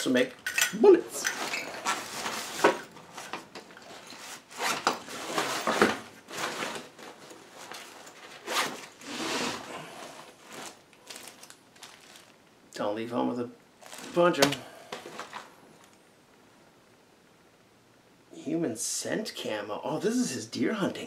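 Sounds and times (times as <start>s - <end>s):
hands rummaging through cardboard box: 5.0s - 12.3s.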